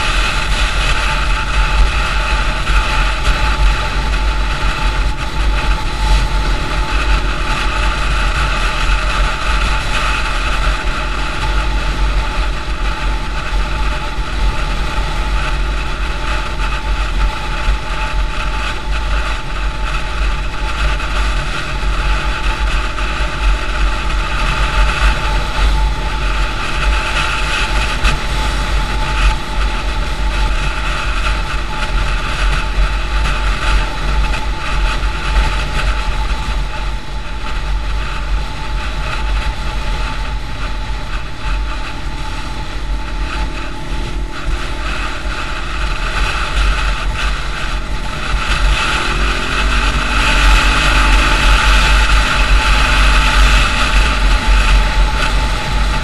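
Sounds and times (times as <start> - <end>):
motorcycle engine running: 0.0 - 56.0
road noise: 0.0 - 56.0
wind rush on microphone: 0.0 - 56.0.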